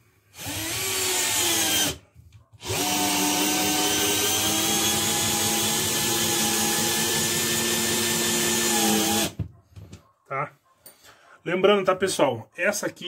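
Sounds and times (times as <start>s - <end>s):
cordless drill whining: 0.3s - 2.0s, 2.6s - 9.4s.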